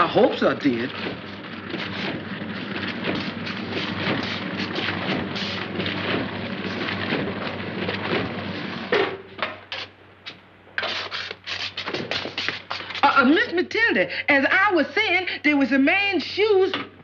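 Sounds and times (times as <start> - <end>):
washing machine chugging: 0.0 - 9.2
short uneven noises: 9.7 - 13.2.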